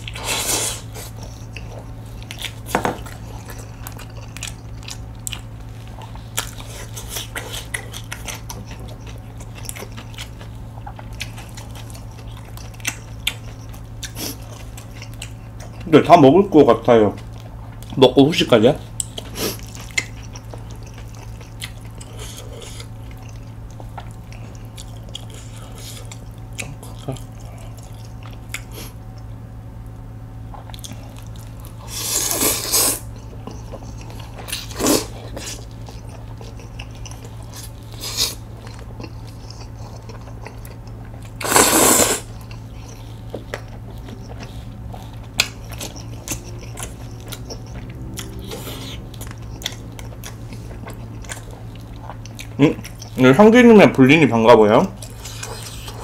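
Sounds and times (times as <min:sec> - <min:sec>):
chewing with crunches: 0:00.0 - 0:56.0
steady low hum: 0:00.0 - 0:56.0
slurping noodles: 0:31.9 - 0:33.1, 0:34.6 - 0:35.6, 0:41.4 - 0:42.4.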